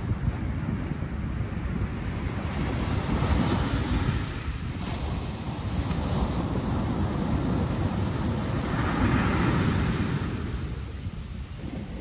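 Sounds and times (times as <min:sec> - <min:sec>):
wind rumble on microphone: 0:00.0 - 0:12.0
waves washing up pebble beach: 0:02.5 - 0:12.0.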